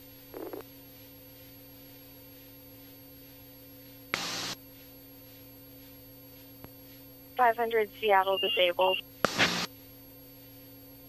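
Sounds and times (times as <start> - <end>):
faint radio hum: 7.4 - 9.7
radio static burst: 7.4 - 9.7.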